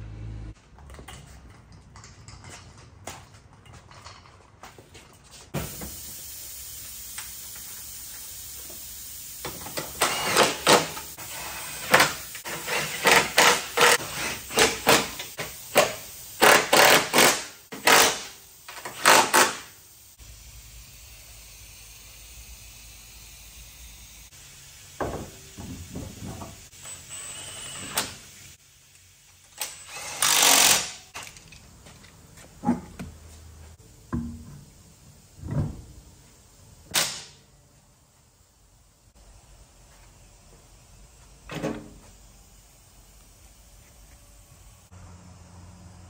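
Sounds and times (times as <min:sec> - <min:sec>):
cordless power tool bursts: 0:16.4 - 0:18.3, 0:29.6 - 0:31.2.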